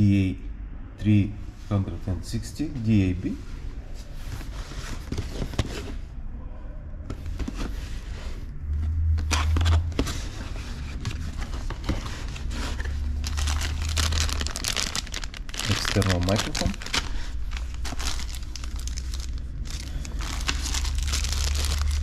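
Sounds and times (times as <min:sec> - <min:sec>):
plastic and paper crinkling: 0:09.2 - 0:22.0.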